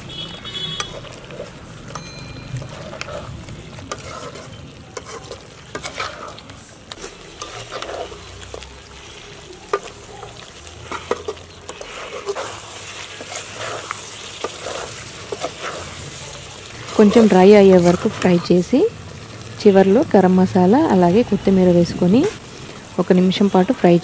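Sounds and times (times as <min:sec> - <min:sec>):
metal spatula scraping pot: 0:00.0 - 0:18.6
chicken sizzling in pot: 0:00.0 - 0:24.0.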